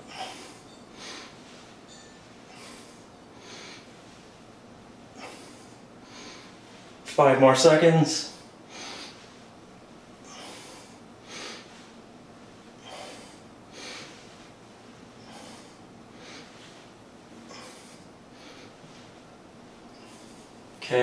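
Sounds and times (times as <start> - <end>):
person breathing hard: 2.5 - 3.9, 8.4 - 9.4, 10.2 - 12.0, 12.8 - 14.5, 15.2 - 16.9, 17.5 - 19.1.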